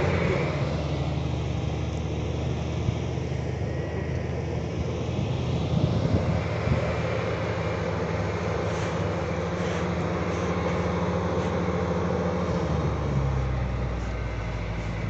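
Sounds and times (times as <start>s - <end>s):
vehicle engine droning: 0.0s - 15.0s.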